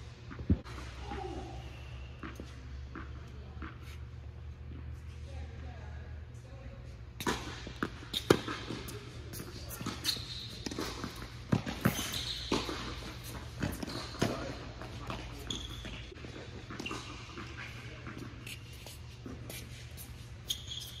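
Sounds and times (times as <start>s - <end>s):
tennis shoes squeaking: 1.1s - 5.0s, 7.8s - 21.0s
ball bouncing on hard court: 2.2s - 4.0s, 7.2s - 18.4s.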